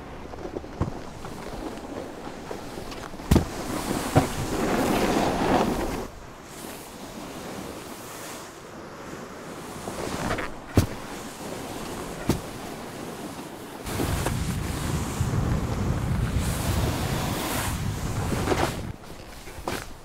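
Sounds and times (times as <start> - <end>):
skis carving through snow: 0.0 - 20.0
wind: 0.0 - 20.0
swoosh of snow spray: 1.1 - 19.0.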